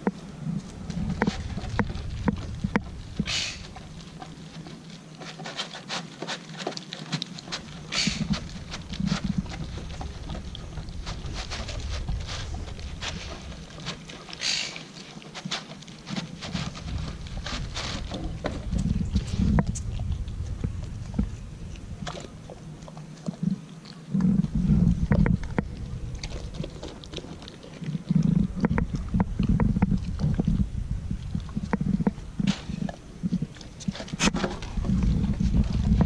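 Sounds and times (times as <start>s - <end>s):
dog chewing and licking: 0.0s - 36.0s
dog hissing breaths through nose: 3.2s - 3.8s, 7.9s - 8.5s, 11.0s - 18.3s.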